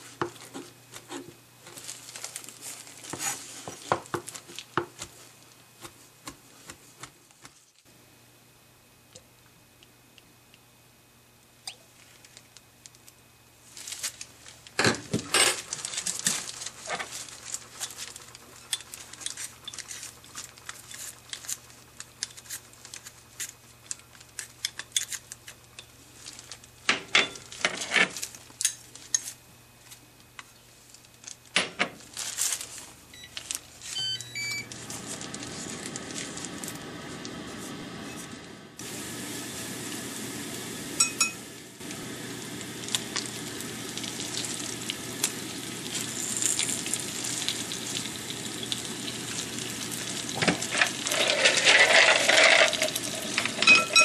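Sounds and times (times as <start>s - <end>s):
cooktop humming: 0.0s - 54.0s
cooktop beeps: 33.1s - 34.8s, 40.9s - 41.6s, 50.1s - 54.0s
garlic sizzling in oil: 34.5s - 54.0s
metal utensils clinking on pot: 50.7s - 54.0s.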